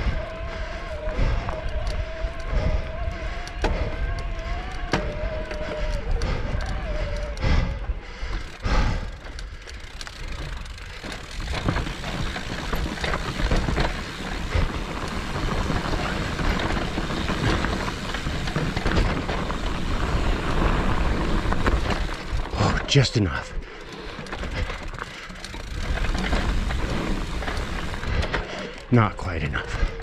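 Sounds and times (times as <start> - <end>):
clicks and knocks from bike: 1.4 - 22.8, 23.8 - 28.9
tyres grinding over dirt and rock: 8.4 - 23.0, 23.8 - 29.5.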